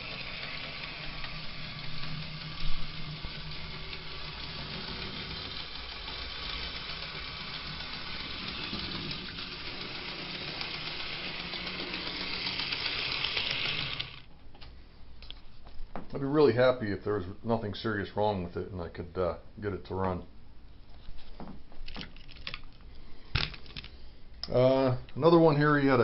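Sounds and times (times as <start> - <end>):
model train motor whirring: 0.0 - 14.3.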